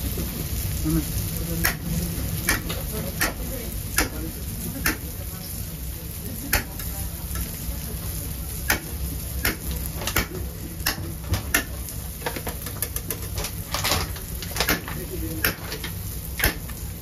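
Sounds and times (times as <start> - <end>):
faint sizzle: 0.0 - 17.0
metal tongs clicking on grill grate: 1.6 - 4.2, 4.8 - 5.0, 6.4 - 7.5, 8.6 - 16.8.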